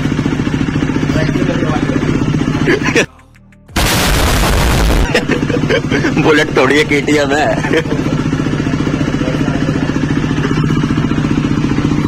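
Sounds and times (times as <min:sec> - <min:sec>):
motorcycle engine idling: 0:00.0 - 0:12.0
explosion sound effect: 0:03.7 - 0:05.3.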